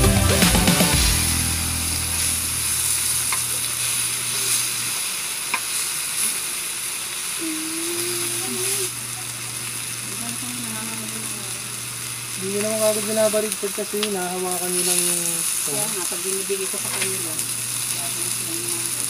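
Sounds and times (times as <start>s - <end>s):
meat sizzling on grill pan: 1.0s - 19.0s
tongs clicking against pan: 5.5s - 5.8s.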